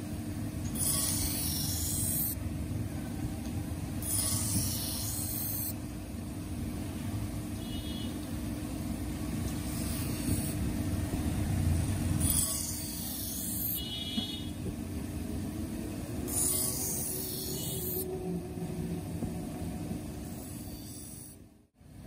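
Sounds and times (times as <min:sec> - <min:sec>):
grinding wheel motor hum: 0:00.0 - 0:21.7
blade grinding hiss: 0:00.7 - 0:02.4, 0:04.0 - 0:05.8, 0:09.5 - 0:10.6, 0:12.2 - 0:14.1, 0:16.2 - 0:18.1, 0:20.2 - 0:21.4.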